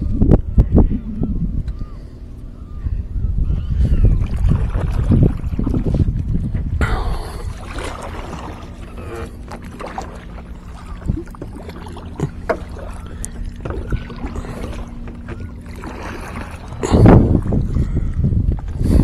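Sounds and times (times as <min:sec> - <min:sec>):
steady low hum: 0:00.0 - 0:19.0
water against kayak hull: 0:00.0 - 0:19.0
hollow knocks on hull: 0:11.1 - 0:12.9, 0:13.6 - 0:16.0.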